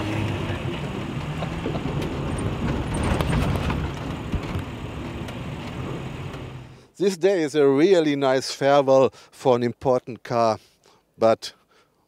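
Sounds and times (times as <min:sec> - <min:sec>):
car engine running: 0:00.0 - 0:06.8
road noise: 0:00.0 - 0:07.0.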